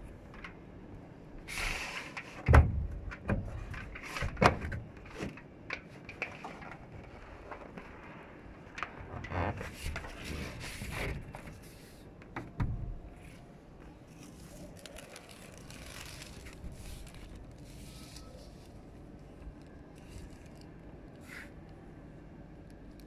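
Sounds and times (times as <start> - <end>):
foil tape crinkling and scraping: 14.1 - 20.8.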